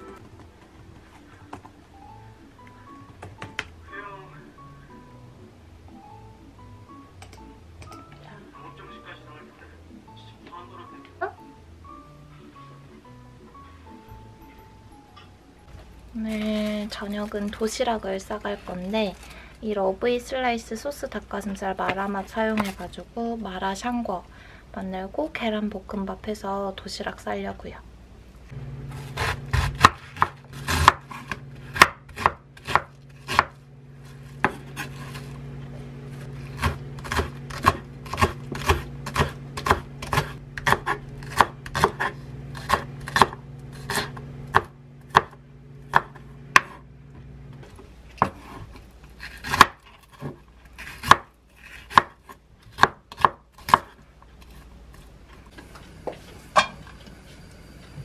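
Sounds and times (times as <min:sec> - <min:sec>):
steady low hum: 0:11.6 - 0:51.6, 0:53.8 - 0:58.0
knife chopping on wooden board: 0:28.9 - 0:33.6, 0:34.2 - 0:35.3, 0:36.2 - 0:46.8, 0:48.1 - 0:54.5.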